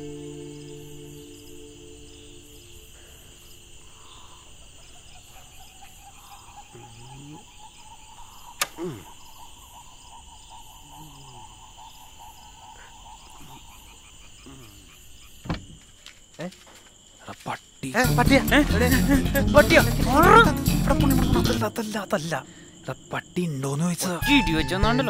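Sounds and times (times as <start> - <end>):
low animal call: 0.0 - 15.0
crickets chirping: 0.0 - 25.0.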